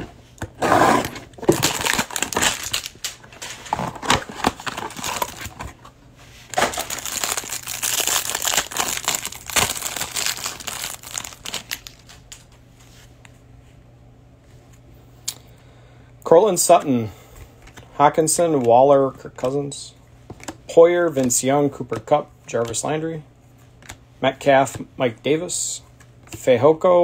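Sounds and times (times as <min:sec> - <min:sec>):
plastic wrapping crinkling and tearing: 0:01.4 - 0:03.2, 0:03.9 - 0:05.6, 0:06.5 - 0:12.5.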